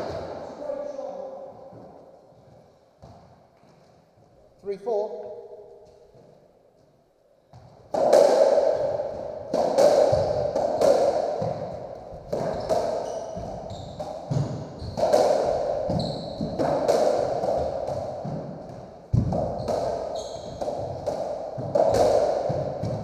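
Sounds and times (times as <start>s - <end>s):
ball cracking off rackets and walls: 7.5s - 23.0s
shoes squeaking on wooden floor: 12.1s - 15.0s, 15.8s - 16.6s, 19.5s - 21.0s.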